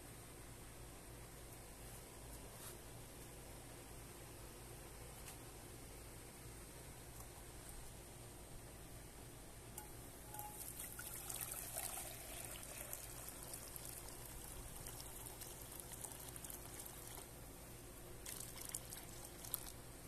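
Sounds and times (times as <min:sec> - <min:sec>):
water pouring into metal saucepan: 0:10.3 - 0:17.2, 0:18.2 - 0:19.7.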